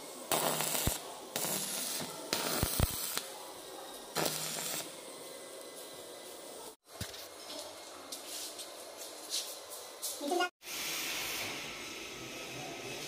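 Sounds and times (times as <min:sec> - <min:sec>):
welding arc hissing and crackling: 0:00.0 - 0:07.2, 0:10.6 - 0:13.0.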